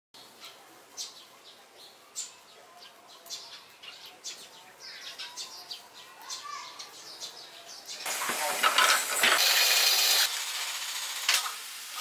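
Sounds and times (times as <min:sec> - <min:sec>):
sparrows chirping: 0:00.2 - 0:09.2.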